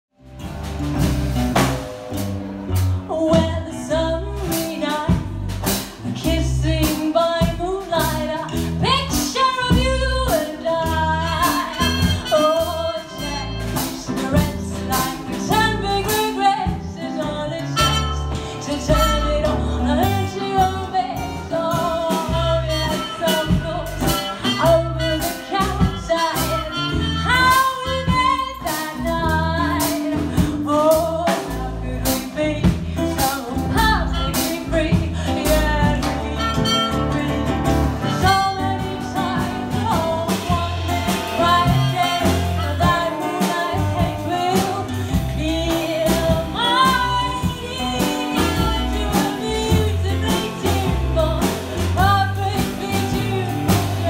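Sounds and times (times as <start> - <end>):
drums: 0.1 - 54.0
guitars: 0.2 - 54.0
woman singing: 3.1 - 54.0
trumpet: 10.3 - 15.6, 17.5 - 28.8, 33.7 - 45.1.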